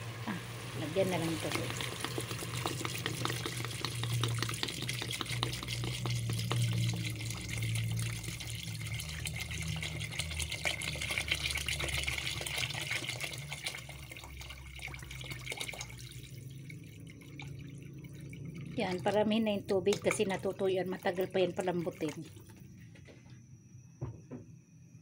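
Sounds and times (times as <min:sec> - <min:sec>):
water pouring into a pot: 0:00.0 - 0:22.6.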